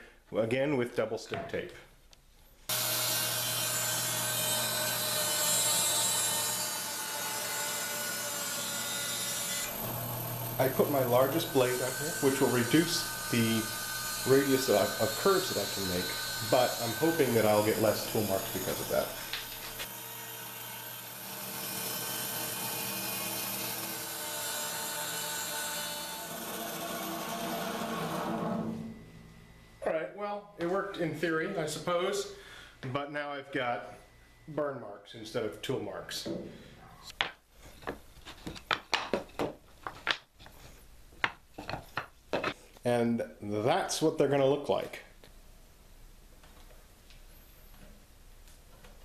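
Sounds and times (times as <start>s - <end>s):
saw blade rasping through wood: 2.7s - 28.6s
bandsaw cutting wood: 2.7s - 29.0s
motor hum: 9.7s - 14.3s.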